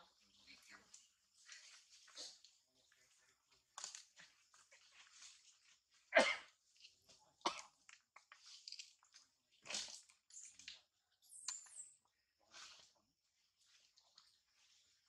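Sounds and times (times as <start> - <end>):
rustling in leaves and grass: 0.2 - 7.4.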